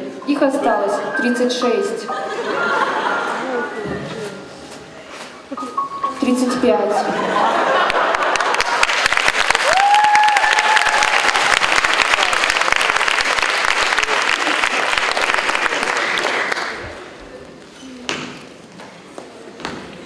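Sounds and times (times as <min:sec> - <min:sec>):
audience applauding: 0:07.4 - 0:17.2.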